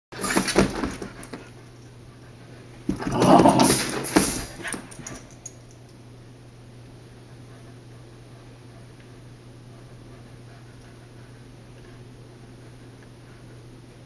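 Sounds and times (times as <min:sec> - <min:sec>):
puppies scuffling: 0:00.2 - 0:01.6.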